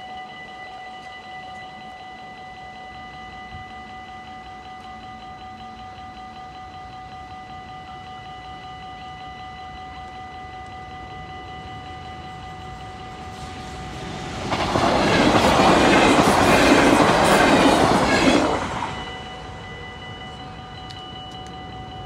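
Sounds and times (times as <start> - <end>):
electric train passing: 0.0 - 22.0
level-crossing warning bell: 0.0 - 22.0.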